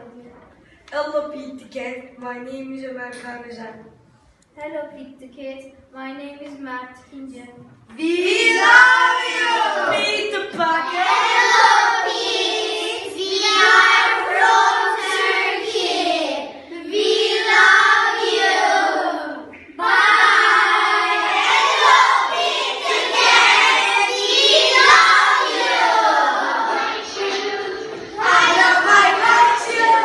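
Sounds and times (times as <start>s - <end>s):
children singing in unison: 8.1s - 10.2s, 10.8s - 30.0s.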